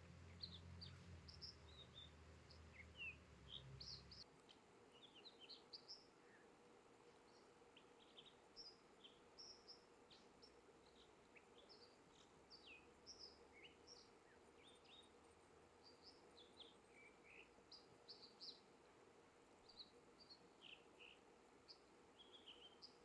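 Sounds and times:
bird singing high whistled notes: 22.2s - 23.0s.

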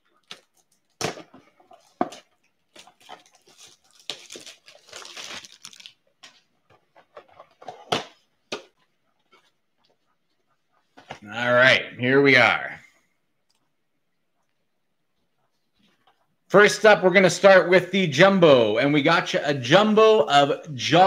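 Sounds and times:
shrink wrap crinkling and tearing: 0.0s - 1.0s, 1.7s - 6.6s.

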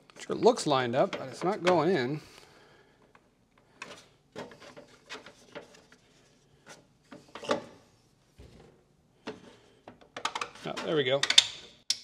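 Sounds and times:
plastic parts scraping: 3.6s - 7.8s.

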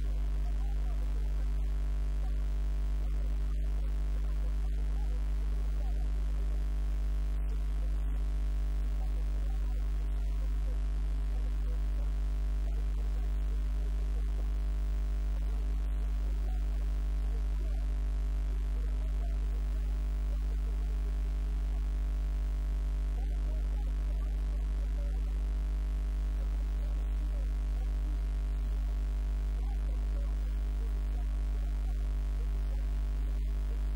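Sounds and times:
electrical mains hum: 0.0s - 33.9s.

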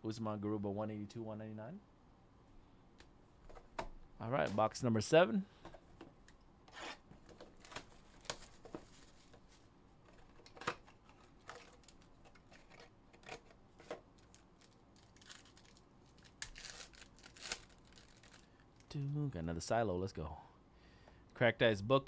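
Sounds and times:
foil pack crinkling: 10.5s - 19.0s.

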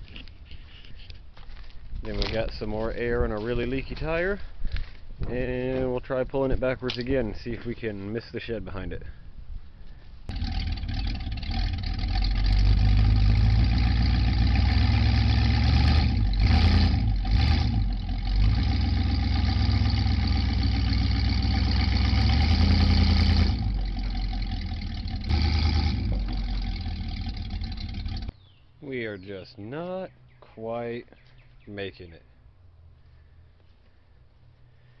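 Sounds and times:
truck engine under load: 10.3s - 28.3s.

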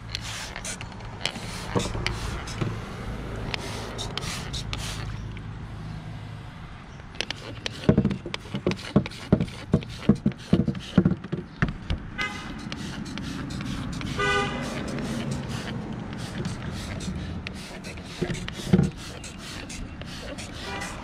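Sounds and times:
spray bottle squirting: 0.0s - 2.7s, 3.5s - 5.2s, 7.2s - 11.1s, 12.2s - 21.0s
horn-like toots: 12.2s - 15.8s, 16.4s - 21.0s.

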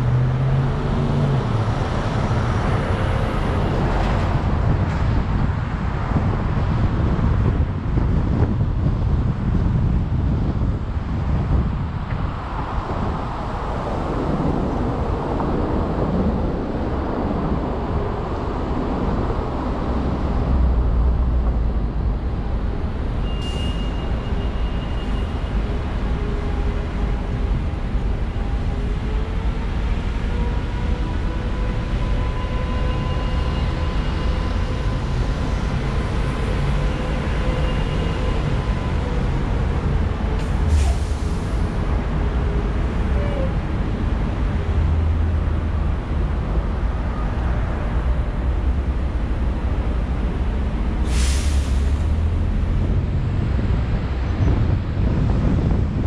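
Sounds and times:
passing traffic rumble: 0.0s - 56.0s
brief high squeal: 23.2s - 25.4s.

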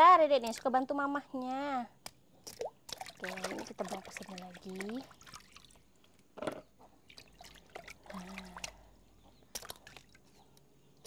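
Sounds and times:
water dripping: 2.0s - 6.2s, 7.1s - 8.9s, 9.5s - 10.3s
water sloshing in a plastic basin: 2.4s - 10.6s.

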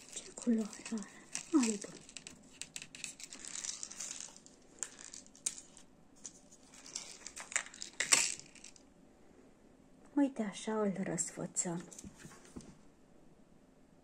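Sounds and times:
crinkling craft materials: 0.0s - 8.8s.

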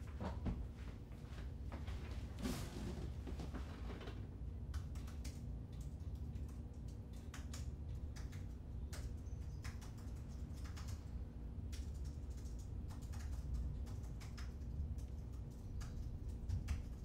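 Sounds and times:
low steady hum: 0.0s - 17.0s
keyboard keys clicking: 4.7s - 11.0s, 11.7s - 17.0s.

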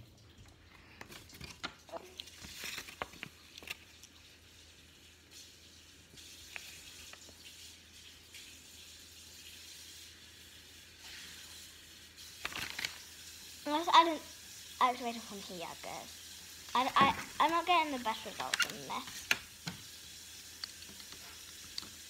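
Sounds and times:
faint steady hiss: 0.0s - 22.0s
paper rustling and clicks: 1.0s - 3.8s, 12.4s - 13.1s, 18.3s - 19.5s.

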